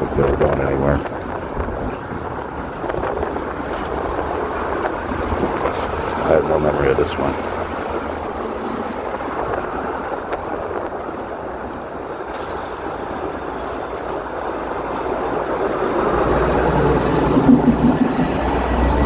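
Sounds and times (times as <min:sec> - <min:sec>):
street traffic going by: 0:00.0 - 0:19.0
vehicle passing with low rumble: 0:15.0 - 0:19.0.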